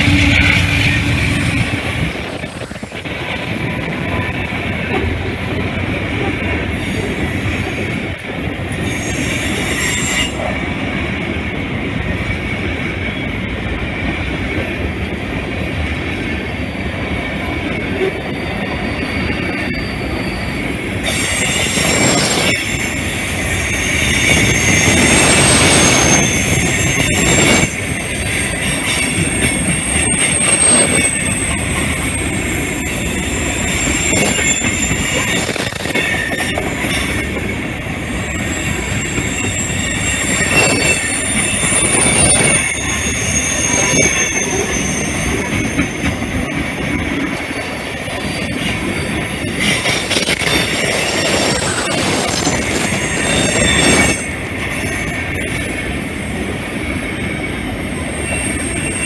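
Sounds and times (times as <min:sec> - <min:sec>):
high-pitched wheel squeal: 0:00.0 - 0:02.1, 0:08.8 - 0:14.3, 0:17.4 - 0:59.0
train wheels rumbling on rails: 0:00.0 - 0:59.0.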